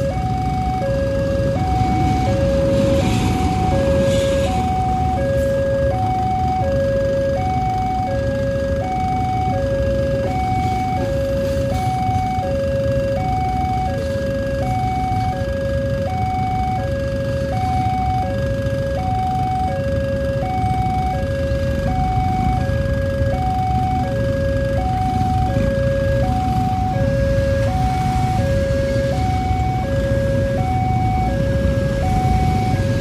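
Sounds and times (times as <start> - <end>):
train passing rumble: 0.0 - 6.8, 9.7 - 15.5, 20.9 - 33.0
level-crossing two-tone alarm: 0.0 - 33.0.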